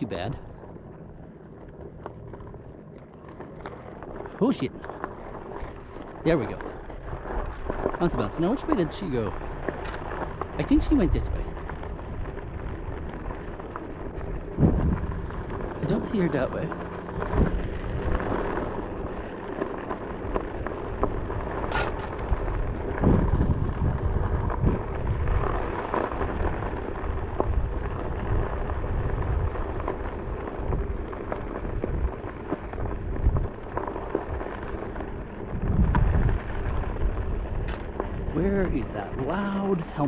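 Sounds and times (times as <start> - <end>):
board rumbling over dirt: 0.0 - 40.0
small clicks: 9.6 - 10.6.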